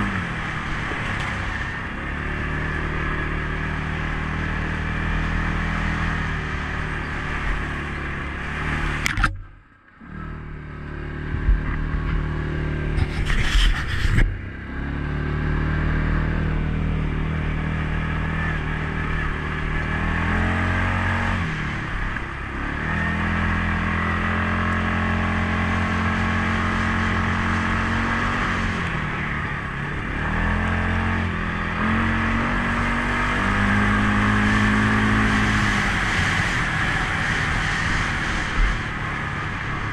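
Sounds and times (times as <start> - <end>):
quad bike engine running: 0.0 - 39.9.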